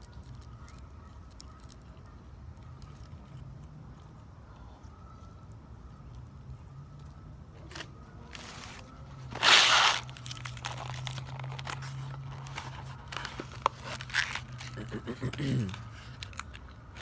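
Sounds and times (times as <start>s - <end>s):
paper packaging crinkling: 7.7s - 15.0s.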